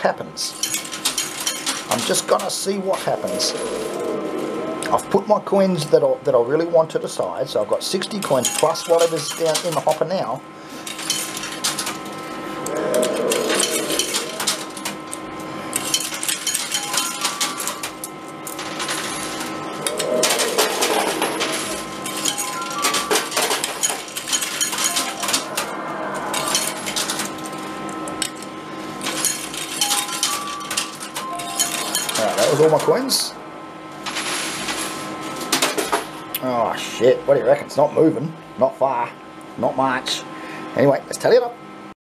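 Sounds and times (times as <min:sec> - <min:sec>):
coins clinking in coin pusher: 0:00.5 - 0:04.0, 0:08.1 - 0:10.1, 0:10.8 - 0:12.1, 0:12.8 - 0:33.1, 0:34.0 - 0:36.1.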